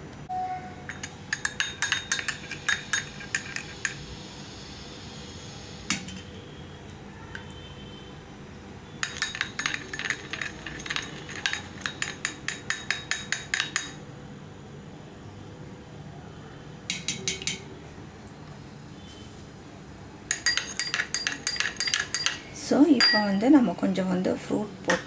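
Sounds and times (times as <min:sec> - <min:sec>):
metal spoon clinking glass bowl: 0:00.8 - 0:04.0, 0:09.0 - 0:14.0, 0:20.3 - 0:23.4.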